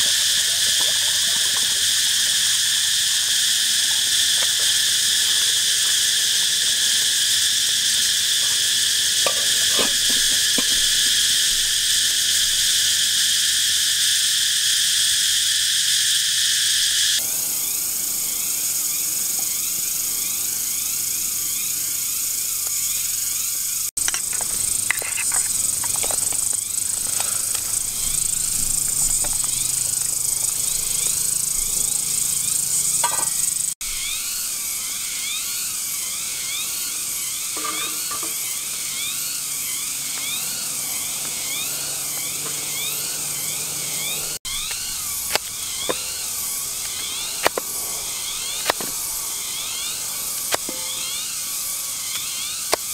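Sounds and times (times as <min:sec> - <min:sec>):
insects buzzing: 0:00.0 - 0:52.9
insects chirping: 0:00.0 - 0:52.9.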